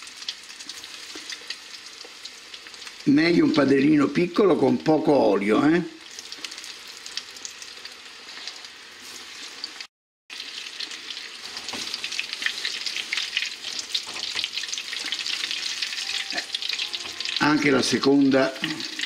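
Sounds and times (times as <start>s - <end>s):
food deep-frying in oil: 0.0s - 19.0s.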